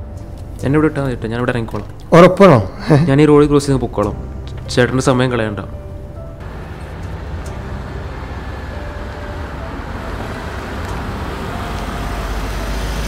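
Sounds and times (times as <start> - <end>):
car engine approaching: 3.6 - 13.0.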